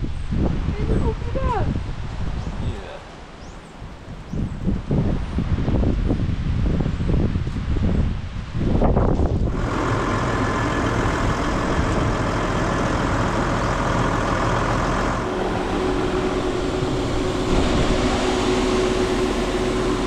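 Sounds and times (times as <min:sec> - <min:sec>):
tractor engine running: 0:09.4 - 0:20.0
steady tone: 0:10.5 - 0:20.0.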